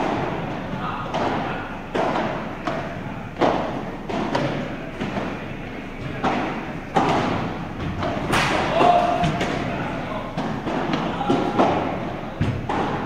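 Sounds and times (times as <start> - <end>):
padel ball hit with rackets: 1.1 - 5.4, 6.0 - 13.0
ball bouncing on court: 6.0 - 9.7, 10.4 - 13.0.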